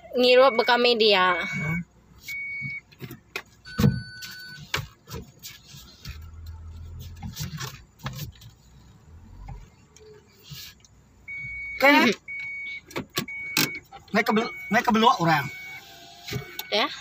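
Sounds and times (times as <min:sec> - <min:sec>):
short electronic beep: 0:00.4 - 0:02.8, 0:03.6 - 0:04.6.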